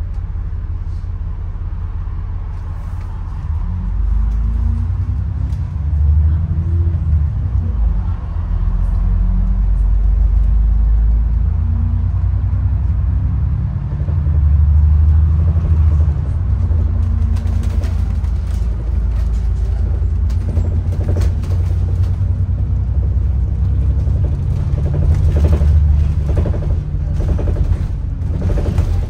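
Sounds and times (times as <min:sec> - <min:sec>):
bus engine and road rumble: 0:00.0 - 0:29.0.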